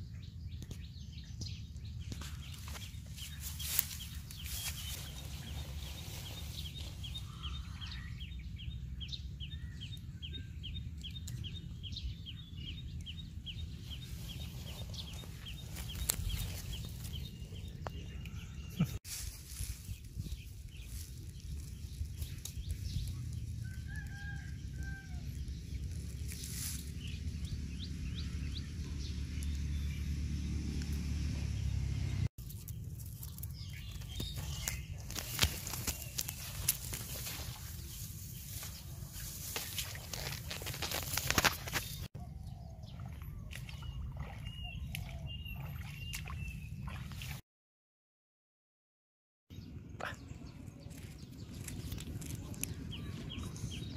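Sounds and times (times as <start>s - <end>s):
low outdoor rumble: 0.0s - 42.1s, 49.6s - 53.9s
footsteps crunching in tall grass: 2.1s - 7.5s, 13.8s - 17.8s, 19.0s - 24.4s, 25.7s - 27.2s, 32.4s - 42.1s
rooster crowing: 23.6s - 25.4s.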